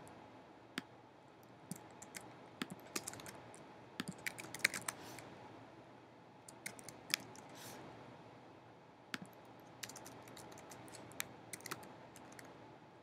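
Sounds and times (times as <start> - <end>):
computer keyboard keystrokes: 1.7 - 3.4, 4.0 - 5.0, 6.5 - 7.5, 9.2 - 12.5.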